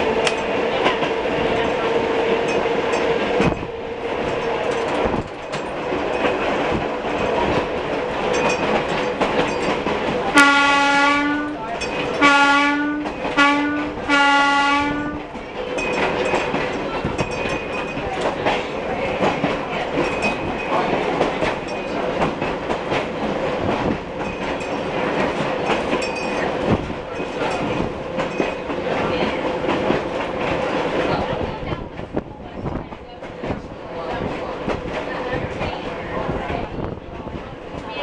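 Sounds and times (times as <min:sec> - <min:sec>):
streetcar hum: 0:00.0 - 0:38.0
wheels rattling and clicking on rails: 0:00.0 - 0:38.0
streetcar horn blasts: 0:10.3 - 0:15.3.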